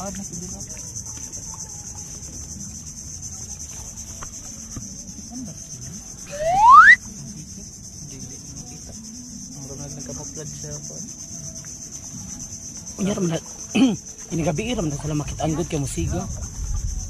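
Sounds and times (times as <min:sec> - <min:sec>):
crickets chirping: 0:00.0 - 0:17.0
person whooping: 0:06.3 - 0:07.0.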